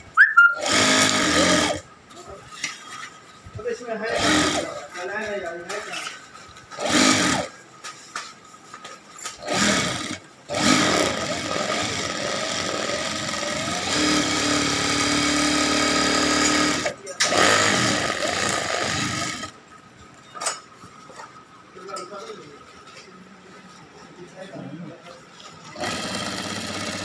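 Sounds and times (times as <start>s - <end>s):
sewing machine stitching: 0.6s - 1.8s, 4.1s - 4.8s, 6.8s - 7.5s, 9.4s - 19.5s, 25.7s - 27.0s.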